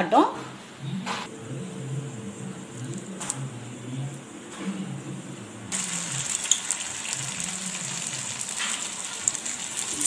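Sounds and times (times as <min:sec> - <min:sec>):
steady low hum: 0:00.7 - 0:06.3.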